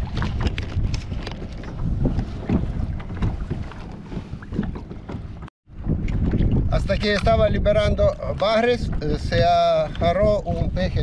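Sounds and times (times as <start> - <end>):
water lapping: 0.0 - 7.2
wind buffeting microphone: 0.0 - 11.0.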